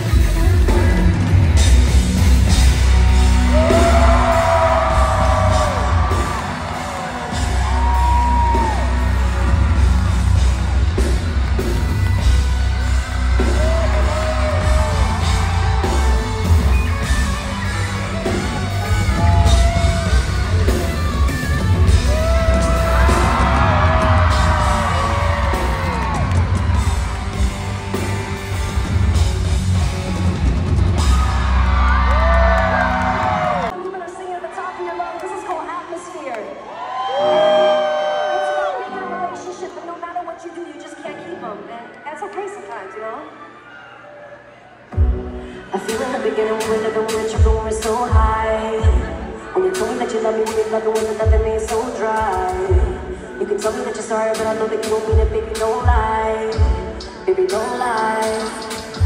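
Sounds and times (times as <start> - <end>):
live pop band playing: 0.0 - 33.7, 44.9 - 59.0
people yelling: 3.4 - 10.6, 22.0 - 27.3
person singing: 45.6 - 59.0.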